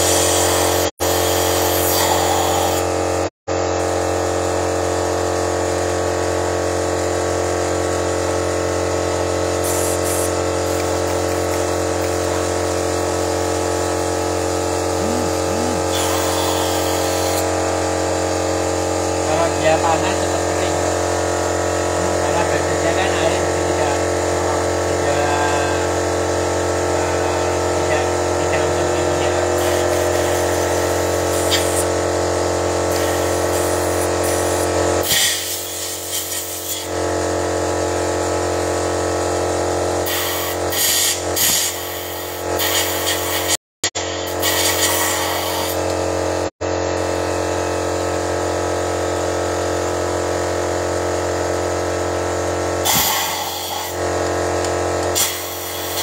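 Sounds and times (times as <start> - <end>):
short bursts of hiss: 44.4 - 45.8, 52.9 - 54.0.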